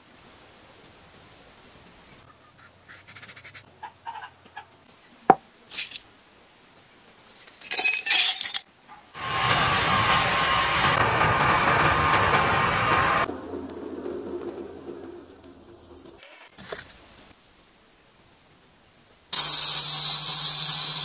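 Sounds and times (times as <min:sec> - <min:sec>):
coal forge roaring: 0:09.2 - 0:16.2
rattling burst: 0:09.2 - 0:16.2.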